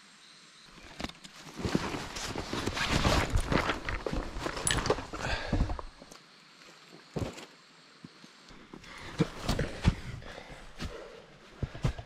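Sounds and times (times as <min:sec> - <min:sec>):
footsteps in undergrowth: 0:00.7 - 0:06.0
leaves and branches rustling: 0:00.7 - 0:12.0.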